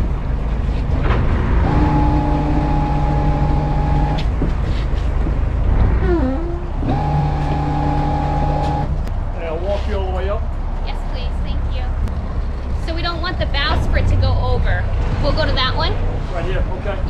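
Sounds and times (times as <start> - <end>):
boat engines rumbling: 0.0 - 17.0
flat humming tone: 1.6 - 4.3.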